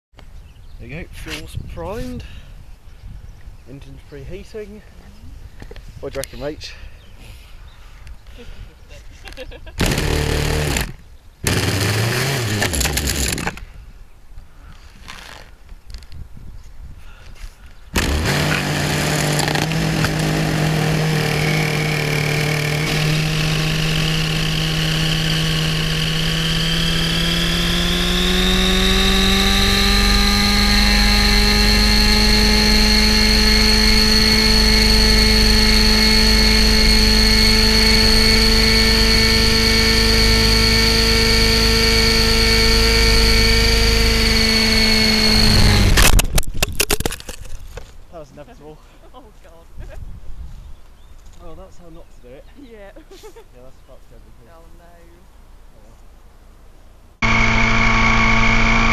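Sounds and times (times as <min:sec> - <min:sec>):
high rotor gear whine: 0:09.8 - 0:13.6, 0:18.0 - 0:46.2, 0:57.2 - 0:58.9
model helicopter engine running: 0:09.8 - 0:13.6, 0:18.0 - 0:46.1, 0:57.2 - 0:58.9.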